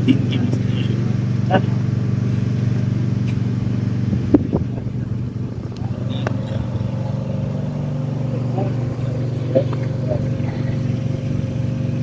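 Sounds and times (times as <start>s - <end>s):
low machine hum: 0.0s - 12.0s
sharp click: 3.2s - 3.4s.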